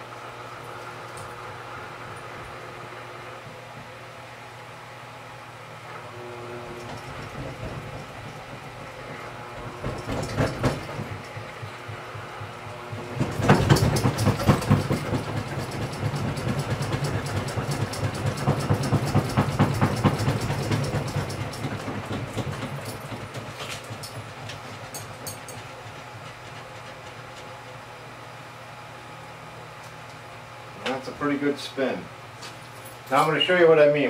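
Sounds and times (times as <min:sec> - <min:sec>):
honey extractor motor hum: 0:00.0 - 0:34.0
fast rhythmic rattle: 0:06.8 - 0:27.6.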